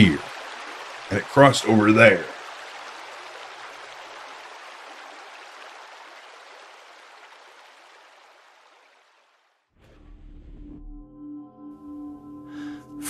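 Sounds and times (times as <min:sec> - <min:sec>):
creek water rushing: 0:00.0 - 0:09.7.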